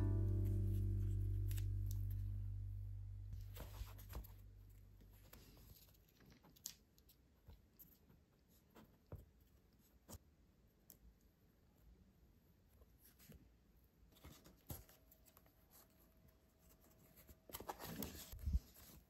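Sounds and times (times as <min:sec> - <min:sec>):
background music: 0:00.0 - 0:03.4
paper and card rustling: 0:03.4 - 0:07.2, 0:14.1 - 0:19.0.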